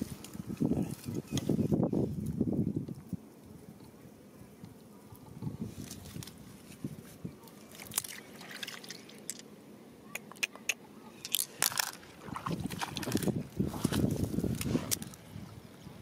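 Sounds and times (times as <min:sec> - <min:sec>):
wet mud squelching: 0:07.6 - 0:09.4, 0:11.2 - 0:15.2.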